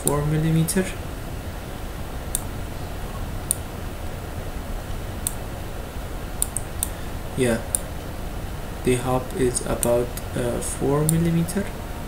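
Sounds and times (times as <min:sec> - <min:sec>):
steady low hum: 0:00.0 - 0:12.0
computer mouse clicking: 0:06.4 - 0:07.0, 0:09.8 - 0:10.0.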